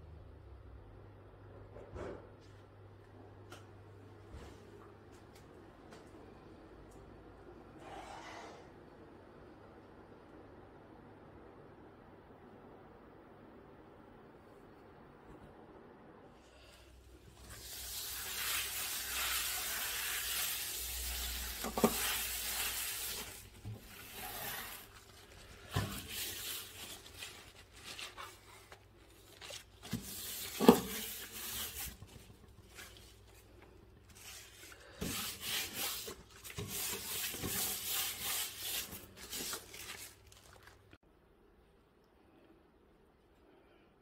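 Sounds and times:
wipe scrubbing table: 17.4 - 40.1.

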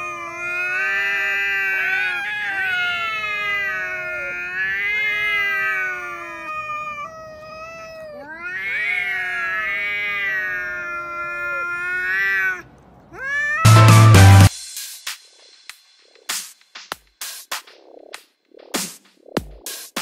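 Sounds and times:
cats yowling: 0.0 - 14.5.

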